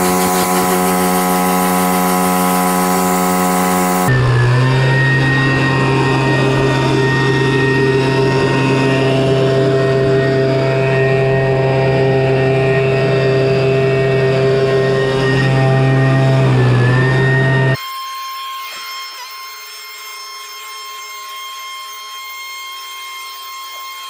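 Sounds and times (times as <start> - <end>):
leaf blower running: 0.0 - 17.8.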